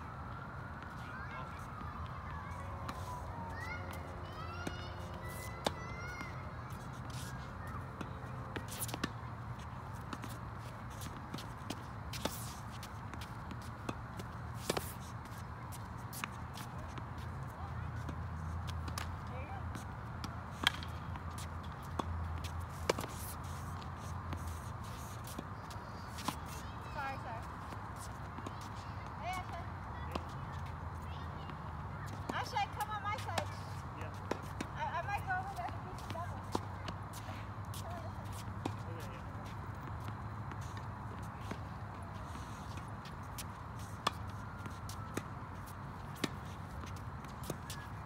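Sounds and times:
tennis ball impacts: 19.7 - 22.1
tennis rackets hitting ball: 19.7 - 25.4.

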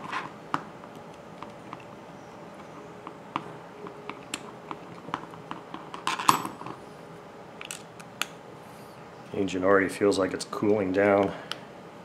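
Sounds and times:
hand tools set down: 5.9 - 6.8.

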